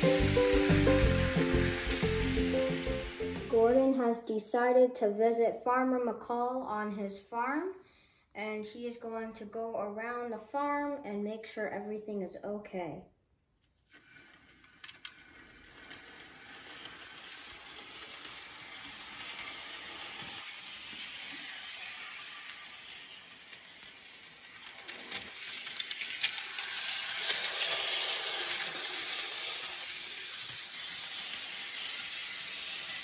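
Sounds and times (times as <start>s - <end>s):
model train whirring rattle: 0.0s - 4.0s, 13.9s - 33.0s.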